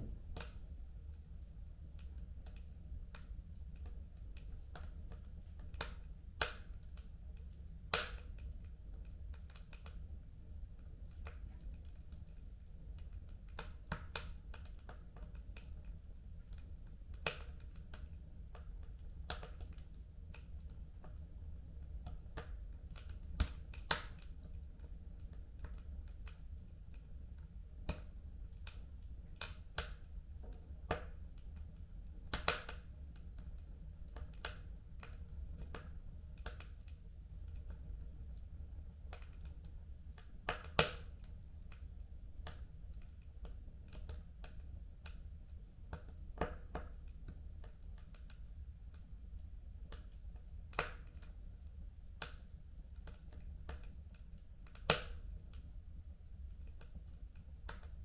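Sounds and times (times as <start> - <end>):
low rumble: 0.0 - 0.3
fire crackling and popping: 0.0 - 58.0.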